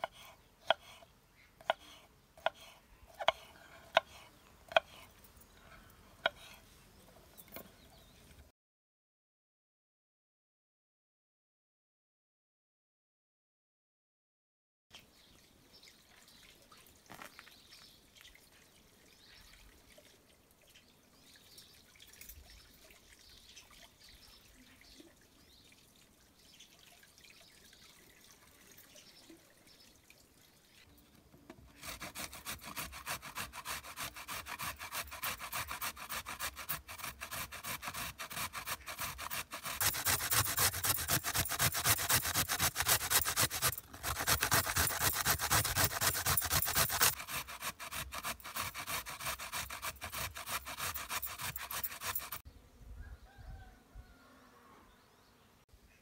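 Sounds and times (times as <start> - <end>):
water trickling from hose: 15.1 - 30.9, 32.0 - 52.4
carrots grated on metal grater: 31.8 - 52.4.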